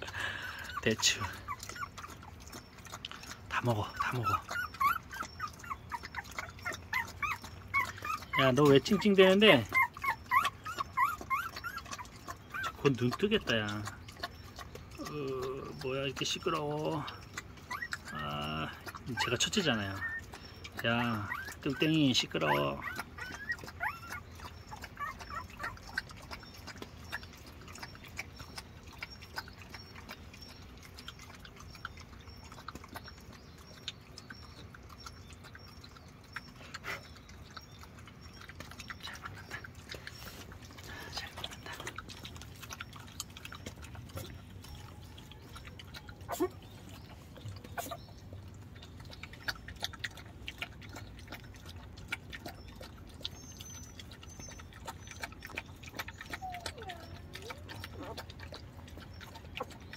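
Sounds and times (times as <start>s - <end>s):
puppy squealing: 0.0s - 15.9s, 16.6s - 26.3s, 42.5s - 48.2s, 53.3s - 58.5s
puppies grunting: 0.0s - 59.9s
puppies suckling: 0.0s - 59.9s.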